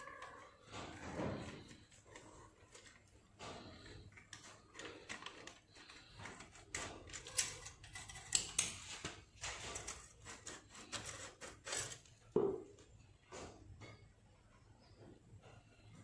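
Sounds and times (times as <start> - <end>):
metal scraping and clinking: 0.2 - 12.3.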